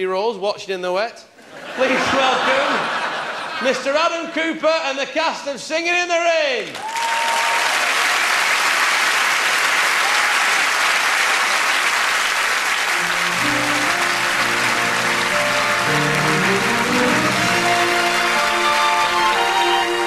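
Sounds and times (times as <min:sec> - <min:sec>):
audience applauding: 0:06.7 - 0:20.0
instrumental music: 0:12.9 - 0:20.0.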